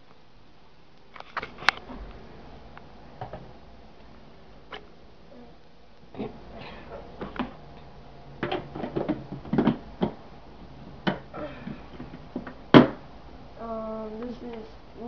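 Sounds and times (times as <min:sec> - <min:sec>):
handling knocks and clicks: 0:08.4 - 0:10.2.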